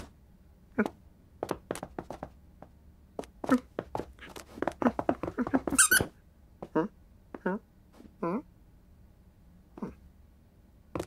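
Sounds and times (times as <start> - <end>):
soft thumps and taps: 0.8 - 7.4.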